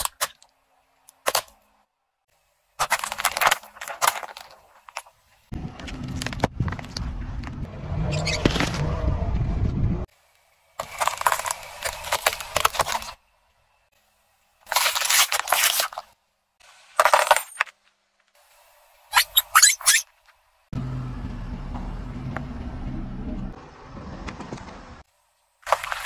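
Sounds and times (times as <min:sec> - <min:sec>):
tubes cracking under tyre: 0:10.8 - 0:13.2
carrots crunching and snapping: 0:14.6 - 0:16.1.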